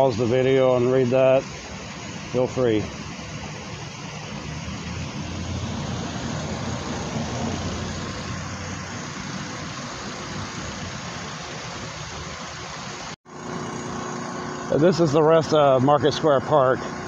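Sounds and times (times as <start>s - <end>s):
water hissing: 0.0s - 13.2s
pressure washer drone: 0.0s - 17.0s.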